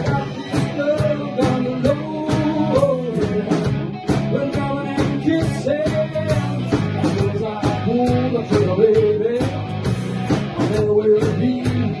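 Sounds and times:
bass guitar: 0.0 - 12.0
drum kit: 0.0 - 12.0
electric guitar: 0.0 - 12.0.

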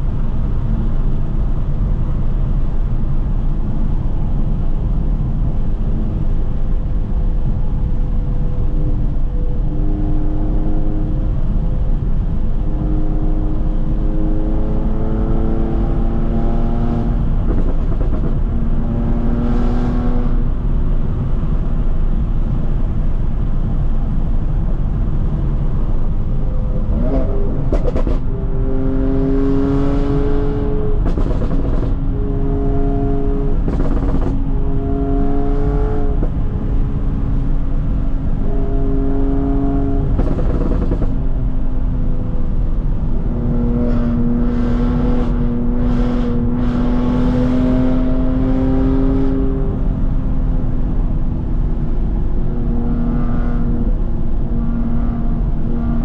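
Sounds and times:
car engine revving: 11.2 - 21.2, 26.2 - 41.4, 42.6 - 50.1.

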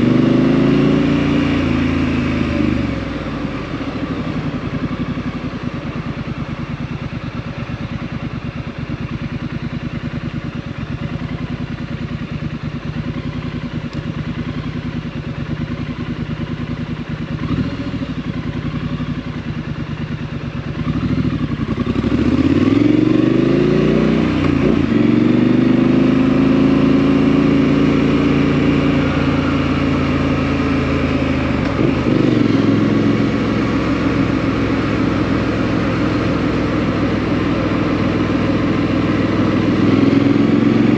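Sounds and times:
motorcycle revving pulling away: 0.0 - 5.4, 12.9 - 19.5, 20.7 - 40.9
motorcycle engine exhaust: 0.0 - 40.9.

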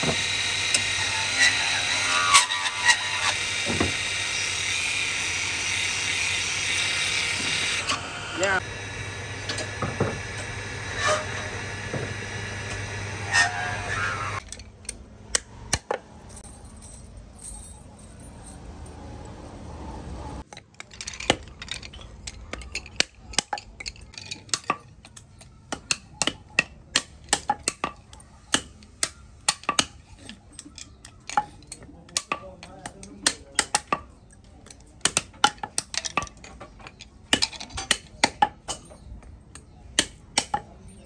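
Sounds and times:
wood lathe humming: 0.0 - 14.4.

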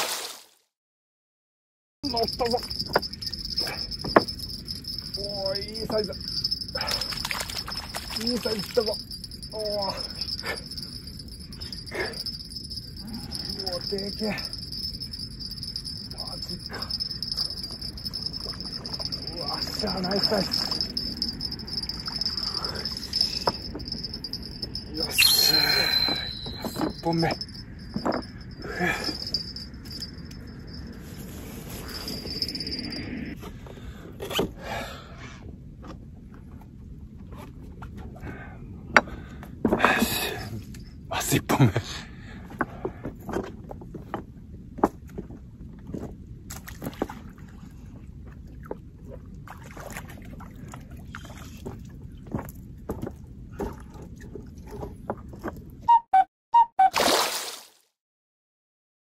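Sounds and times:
insects chirring: 2.0 - 33.4.

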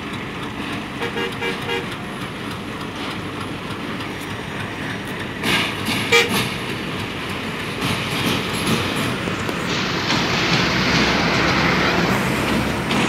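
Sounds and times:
train crossing steel bridge: 0.0 - 13.0
train horn toot: 1.0 - 1.9, 6.1 - 6.4.

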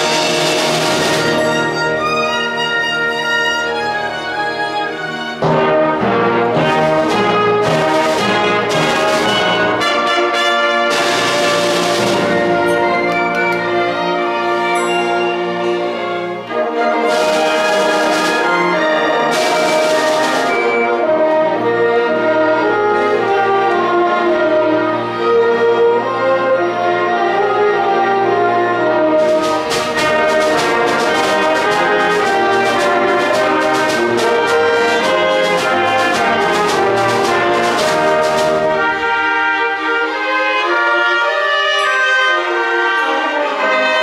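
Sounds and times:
percussion strokes: 0.0 - 21.8, 28.9 - 40.3
symphony orchestra playing: 0.0 - 44.0.

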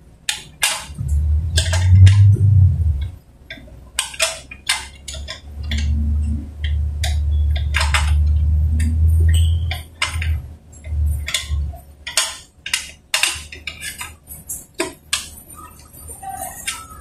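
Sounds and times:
low rumble: 1.0 - 3.2, 5.6 - 11.8.

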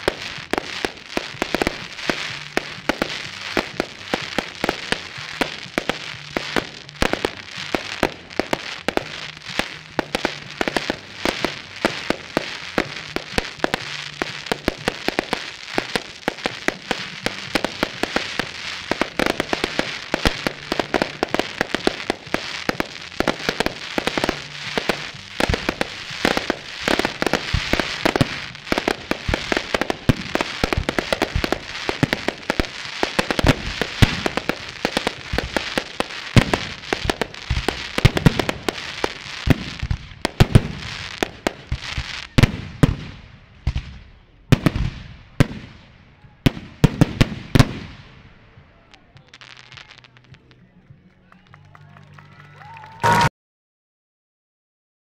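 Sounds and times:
firework shells bursting: 0.0 - 43.8
fireworks crackling: 0.0 - 53.3.

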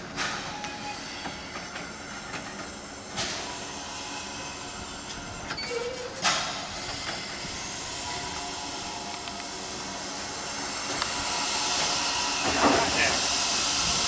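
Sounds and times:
steady hiss of steam: 0.0 - 14.0
loud steam blasts: 2.9 - 14.0.

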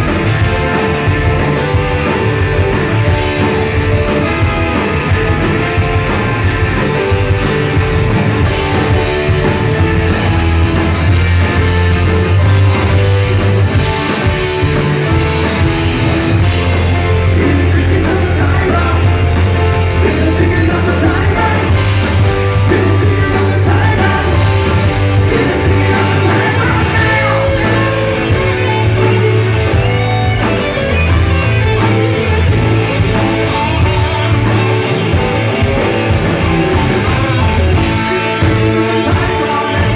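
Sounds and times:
live rock band: 0.0 - 39.9
lead singer: 16.7 - 30.0, 37.0 - 39.9.

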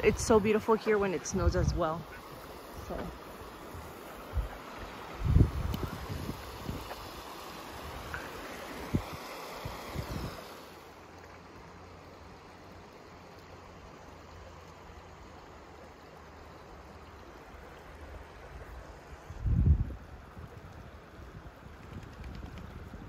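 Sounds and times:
rushing water: 0.0 - 21.8
wind on microphone: 1.3 - 2.2, 3.8 - 7.1, 7.9 - 10.5, 19.3 - 23.0.

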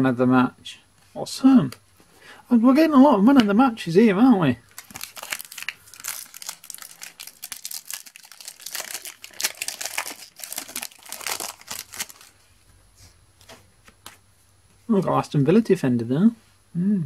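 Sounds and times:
foil wrapper tearing and crinkling: 4.7 - 12.3.

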